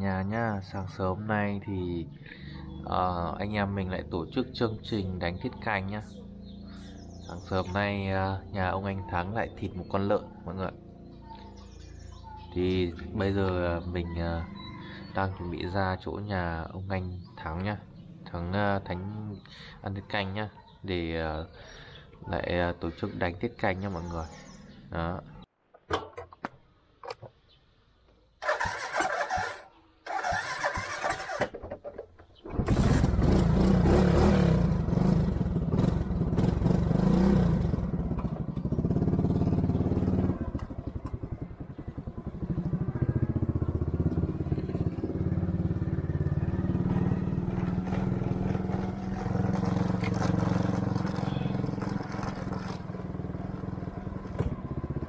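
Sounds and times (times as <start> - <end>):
motorbike engine running: 32.7 - 55.0.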